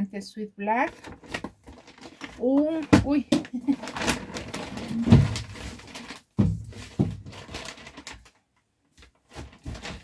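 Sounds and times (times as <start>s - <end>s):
bag rustling: 3.7s - 8.2s.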